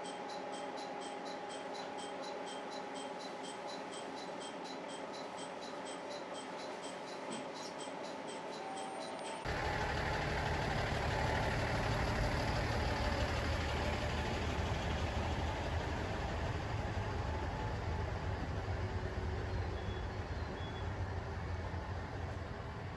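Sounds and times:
diesel railcar engine idling: 0:00.0 - 0:22.9.

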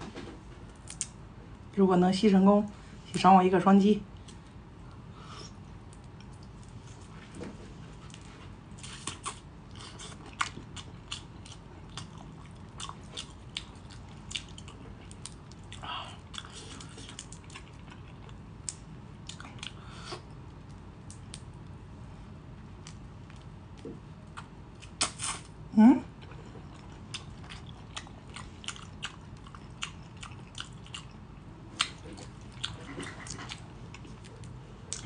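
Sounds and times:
wet sucking and chewing: 0:08.8 - 0:18.4, 0:24.4 - 0:25.5.

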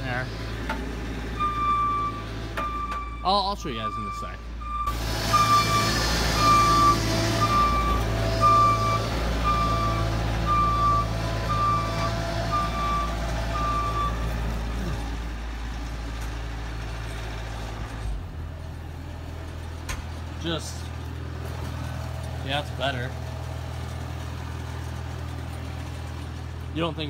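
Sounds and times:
diesel engine running: 0:00.0 - 0:27.0
backup alarm beeping: 0:01.4 - 0:14.3.

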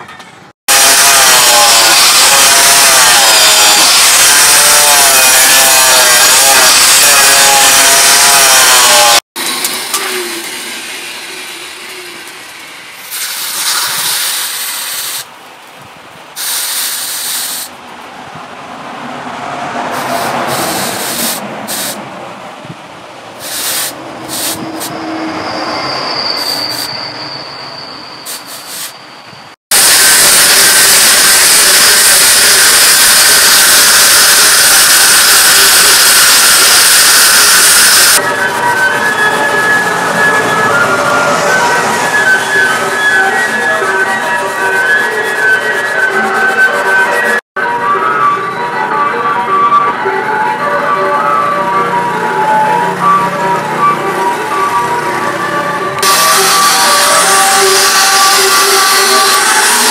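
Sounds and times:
loud steady hiss: 0:09.4 - 0:15.6, 0:16.3 - 0:17.8, 0:20.0 - 0:22.0, 0:23.4 - 0:24.9, 0:28.3 - 0:29.0, 0:29.7 - 0:38.2
machete blade being sharpened: 0:28.3 - 0:29.0.

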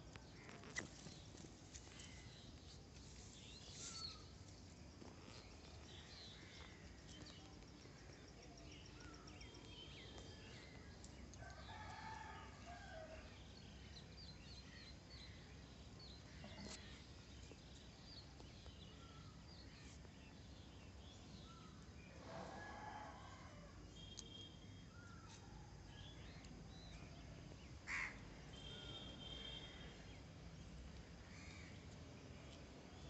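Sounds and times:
distant rooster crowing: 0:11.4 - 0:13.3, 0:22.2 - 0:23.8.

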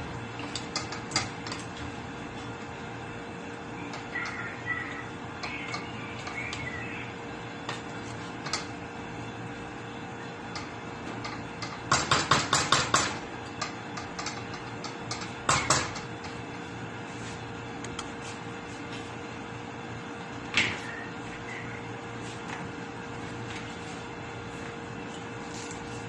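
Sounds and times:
faint steady hum: 0:00.0 - 0:26.0.

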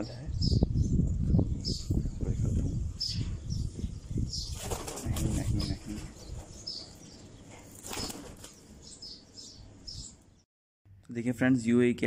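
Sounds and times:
falcon flapping wings: 0:04.5 - 0:05.7, 0:07.7 - 0:08.6.

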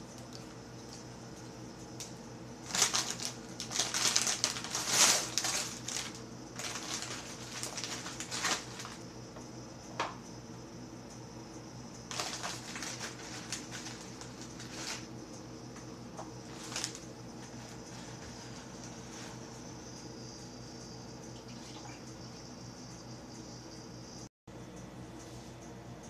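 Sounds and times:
steady low hum: 0:00.0 - 0:26.0
plastic wrapper crinkling: 0:02.6 - 0:09.0, 0:12.1 - 0:15.1, 0:16.4 - 0:17.0.

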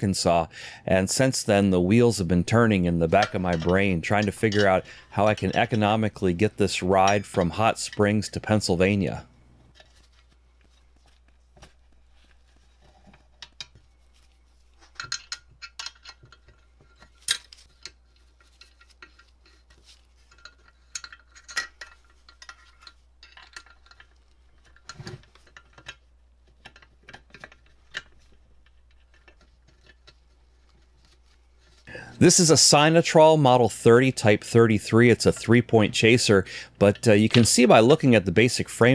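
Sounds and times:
metal parts clinking: 0:03.1 - 0:06.1, 0:14.8 - 0:30.2.

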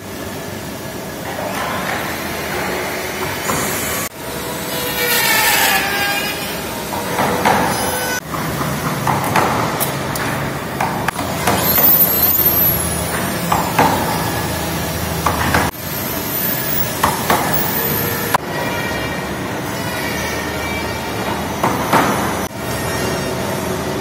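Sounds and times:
power tool whining: 0:11.2 - 0:15.1.

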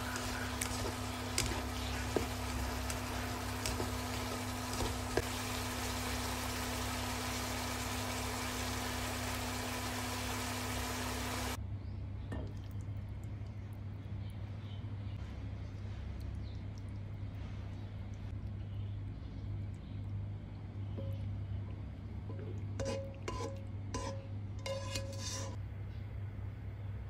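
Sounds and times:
stir-fry sizzling in a pan: 0:00.0 - 0:11.6, 0:22.8 - 0:25.6.

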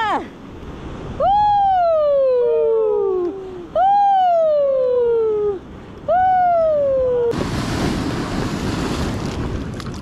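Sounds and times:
sea surf washing over rocks: 0:07.3 - 0:10.0.

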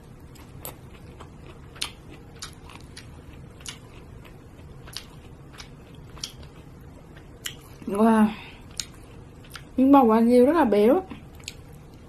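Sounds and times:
low steady hum: 0:00.0 - 0:12.0
eating sounds: 0:00.4 - 0:07.8.

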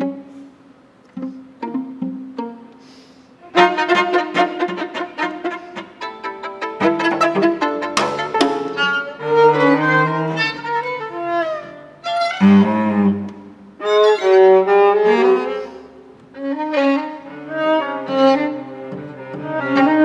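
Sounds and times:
string trio playing: 0:00.0 - 0:20.0.

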